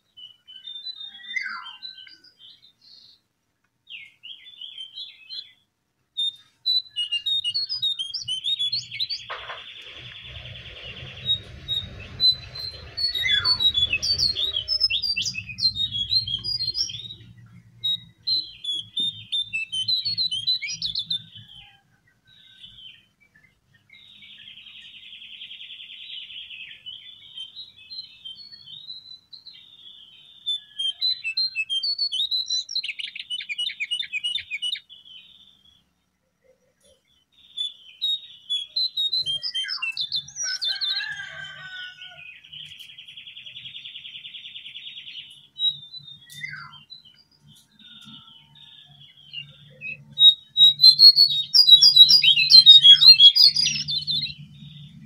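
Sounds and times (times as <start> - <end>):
bird chirping and trilling: 0.2 - 2.7, 6.2 - 21.7, 36.8 - 41.8, 42.4 - 55.0
low hum: 9.3 - 18.0.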